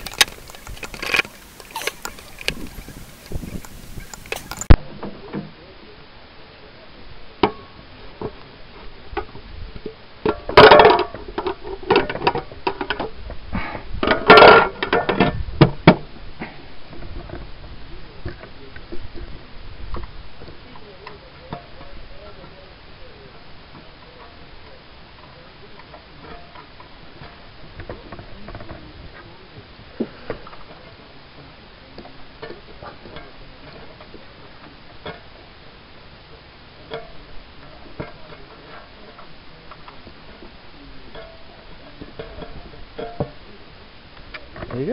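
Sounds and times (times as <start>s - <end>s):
metallic clicks and knocks: 0.0s - 4.8s.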